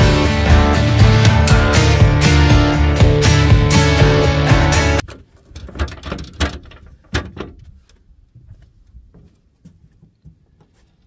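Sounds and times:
sharp knocks and clunks: 5.0s - 7.8s.

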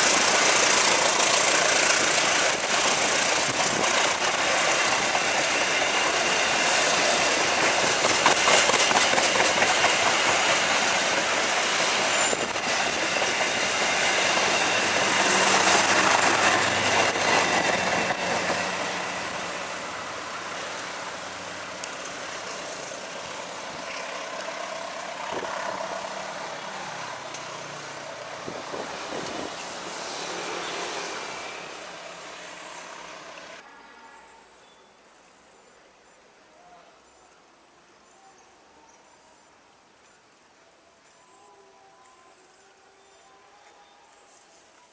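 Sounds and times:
train coaches rolling on rails: 0.0s - 34.6s.

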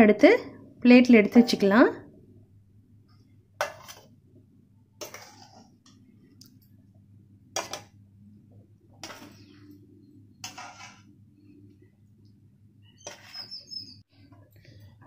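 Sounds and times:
faint steady hum: 5.6s - 13.0s.

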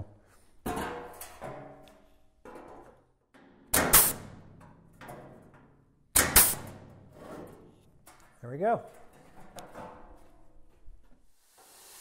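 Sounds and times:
hole punch cracking through steel: 6.2s - 6.8s.

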